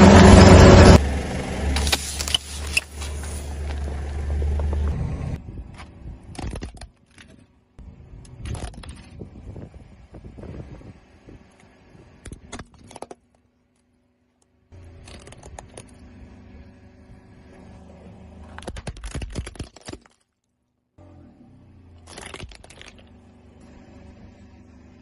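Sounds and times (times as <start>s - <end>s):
low car rumble: 0.0s - 6.4s, 14.7s - 18.6s
plastic toy cracking under tyre: 18.5s - 20.4s, 22.0s - 23.0s.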